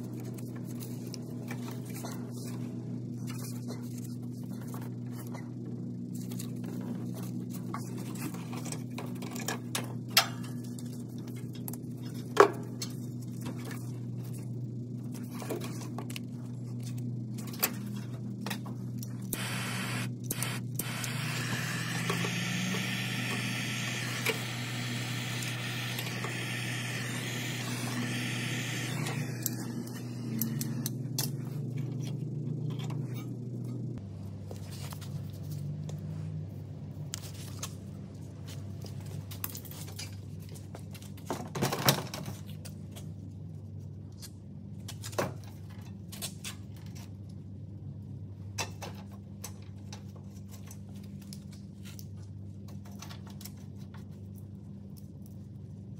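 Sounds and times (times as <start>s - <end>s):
workshop low hum: 10.4s - 39.6s.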